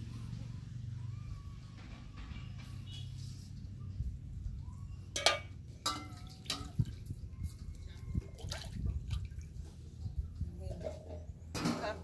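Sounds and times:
metal pots clinking and knocking: 0:05.1 - 0:07.0, 0:11.5 - 0:12.0
water splashing and dripping: 0:05.1 - 0:10.3.

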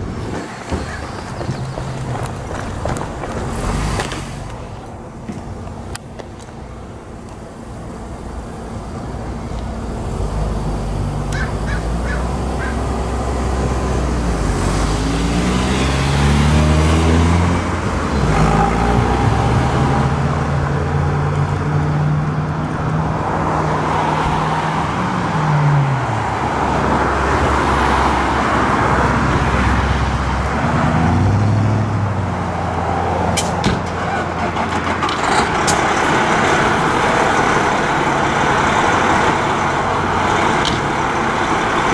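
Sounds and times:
diesel truck engine revving: 0:08.1 - 0:41.9.

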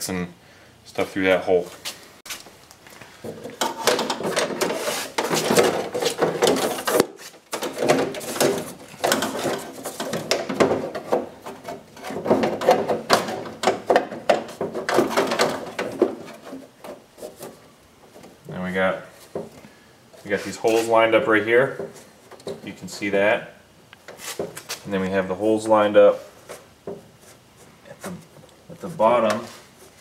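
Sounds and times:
metal scraping and rattling: 0:03.2 - 0:18.6.

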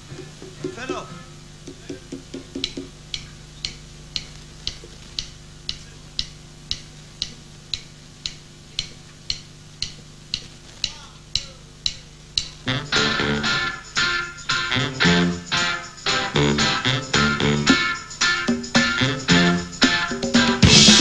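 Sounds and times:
low steady hum: 0:00.0 - 0:15.3
ticking clicks: 0:01.6 - 0:12.6.

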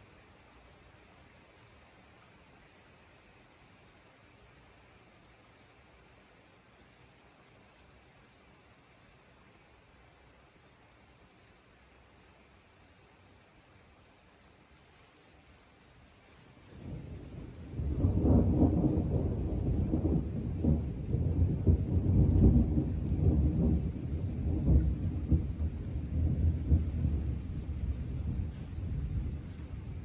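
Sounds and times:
thunder rumbling: 0:16.7 - 0:30.0.

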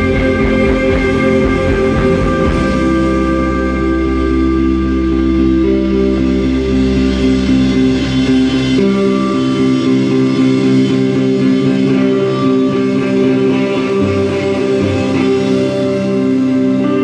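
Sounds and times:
low bass note: 0:00.0 - 0:10.7
guitar music with ringing notes: 0:00.0 - 0:17.0.

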